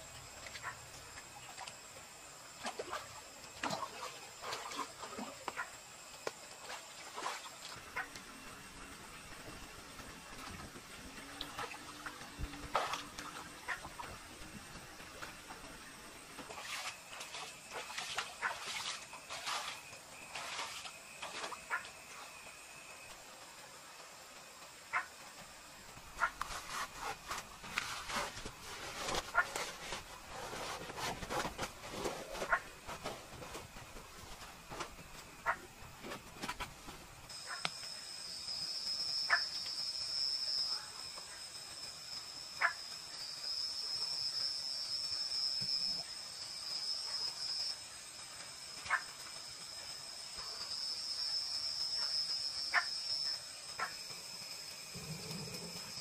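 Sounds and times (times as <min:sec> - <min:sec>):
shrill insect chorus: 0:37.3 - 0:56.0.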